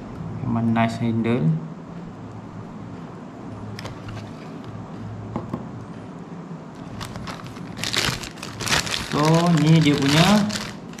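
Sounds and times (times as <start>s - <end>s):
low background hum: 0.0s - 11.0s
plastic wrapping crinkling: 6.8s - 11.0s.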